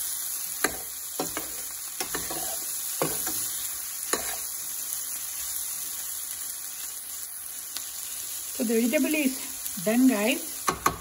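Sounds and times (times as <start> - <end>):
vegetables sizzling in a pan: 0.0 - 11.0
metal spoon scraping a pan: 0.6 - 4.6.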